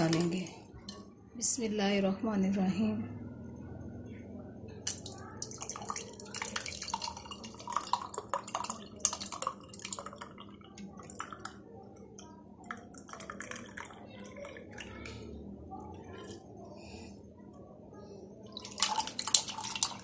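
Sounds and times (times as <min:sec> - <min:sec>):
liquid pouring into a glass: 0:04.8 - 0:16.5, 0:18.4 - 0:20.0.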